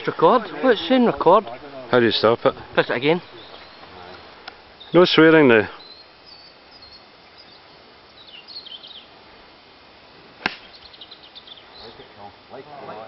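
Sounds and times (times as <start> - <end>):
golf club striking ball: 10.4 - 10.8.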